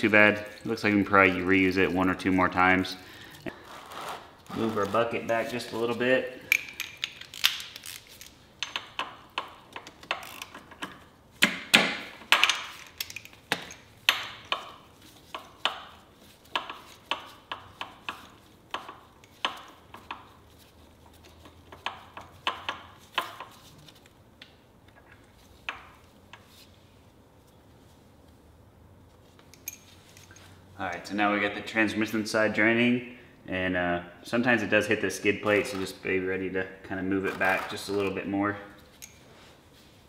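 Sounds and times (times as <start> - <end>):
hand tools and metal parts clinking: 4.6 - 11.1, 12.0 - 24.1, 29.3 - 31.1, 38.8 - 39.4.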